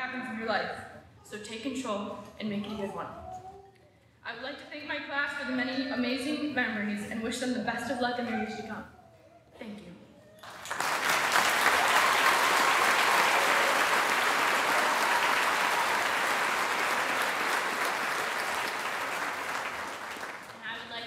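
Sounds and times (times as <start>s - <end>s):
audience applauding: 10.4s - 21.0s.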